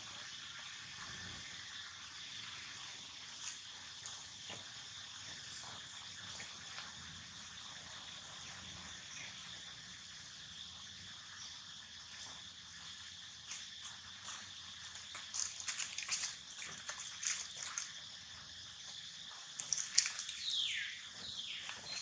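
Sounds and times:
dry leaves crackling: 0:15.0 - 0:18.0, 0:19.6 - 0:20.8.

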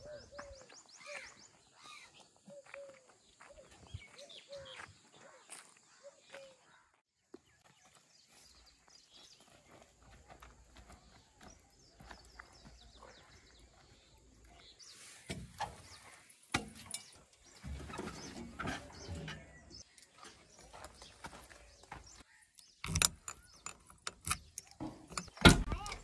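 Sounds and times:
footsteps on dry dirt: 0:00.0 - 0:16.5, 0:17.2 - 0:22.8
sharp knocks and clunks: 0:15.3 - 0:20.4, 0:22.8 - 0:26.0.

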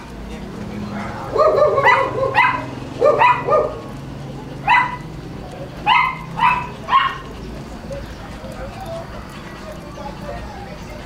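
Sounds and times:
dog barking: 0:00.9 - 0:04.0, 0:04.6 - 0:05.1, 0:05.8 - 0:07.3.

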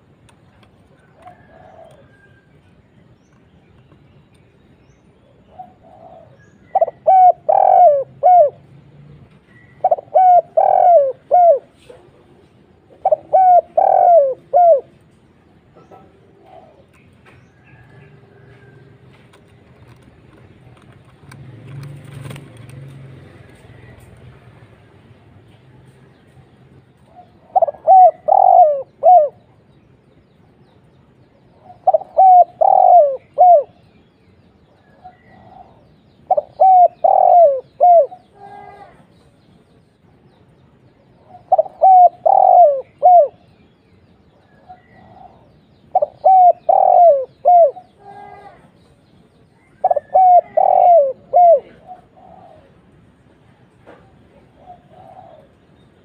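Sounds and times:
dove cooing: 0:01.0 - 0:02.4, 0:05.5 - 0:17.0, 0:27.0 - 0:29.6, 0:31.5 - 0:33.9, 0:34.9 - 0:39.0, 0:41.2 - 0:43.5, 0:44.5 - 0:48.7, 0:49.6 - 0:53.3, 0:54.0 - 0:55.7.

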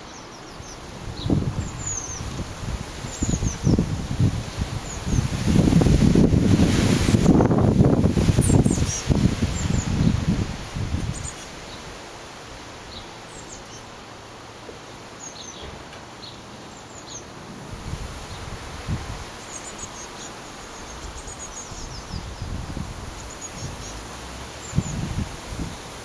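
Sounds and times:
small birds chirping: 0:00.0 - 0:06.3, 0:08.2 - 0:17.4, 0:18.2 - 0:26.0
wind rustling foliage: 0:00.0 - 0:26.0
wind buffeting microphone: 0:00.6 - 0:12.0, 0:17.5 - 0:19.4, 0:21.0 - 0:26.0.

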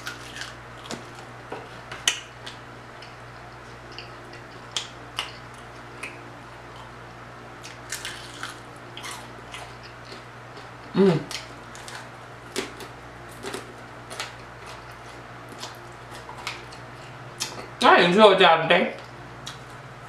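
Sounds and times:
low steady hum: 0:00.0 - 0:20.0
crispy chicken wing crackling: 0:07.7 - 0:10.2.

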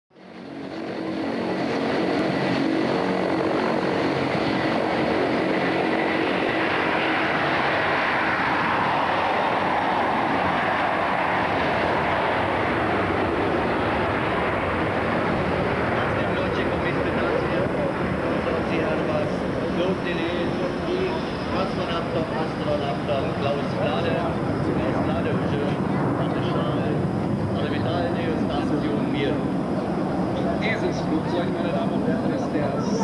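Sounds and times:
jet engine whine: 0:00.1 - 0:33.0
jet engines at takeoff: 0:00.1 - 0:33.0.

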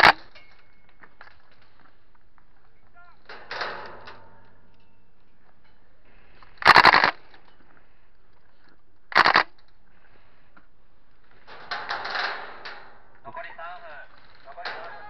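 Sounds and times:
soft loose rattle: 0:03.0 - 0:06.4, 0:11.0 - 0:15.0
airsoft gun full-auto bursts: 0:06.6 - 0:07.2, 0:09.1 - 0:09.5.

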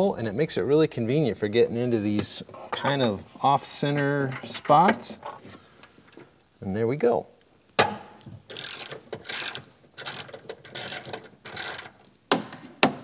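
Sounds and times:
ratchet wrench clicking: 0:08.5 - 0:12.0.

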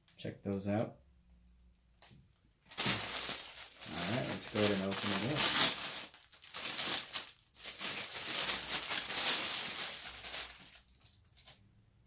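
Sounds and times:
plastic bag crinkling: 0:02.7 - 0:11.6.

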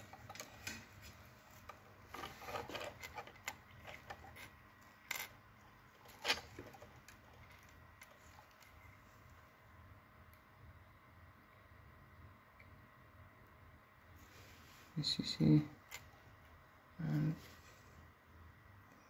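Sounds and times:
wires rustling: 0:00.0 - 0:09.6.

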